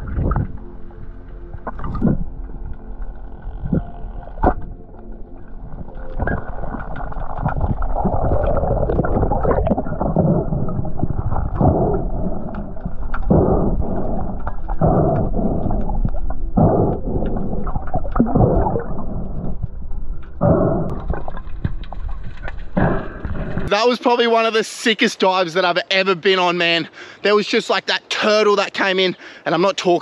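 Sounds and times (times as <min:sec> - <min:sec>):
muffled underwater rumble: 0:00.0 - 0:23.7.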